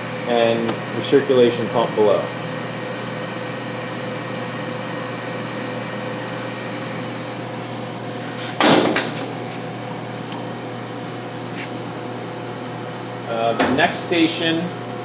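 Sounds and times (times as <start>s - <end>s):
steady machine hum: 0.0s - 15.0s
cabinet door clattering shut: 8.6s - 9.2s.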